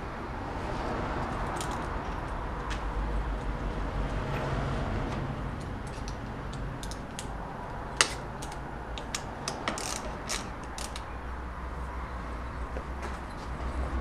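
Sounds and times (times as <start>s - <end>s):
metallic clicks of hand tool: 5.6s - 7.3s.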